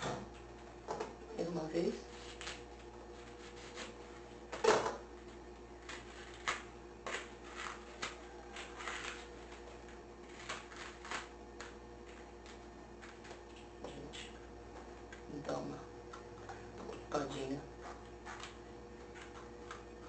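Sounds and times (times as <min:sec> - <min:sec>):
bamboo husk crackling and snapping: 0:03.6 - 0:15.3.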